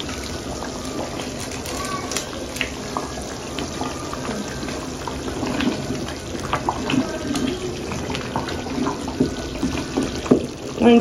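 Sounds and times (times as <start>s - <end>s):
stew bubbling and popping: 0.0s - 11.0s
wooden spoon stirring stew: 4.6s - 10.9s.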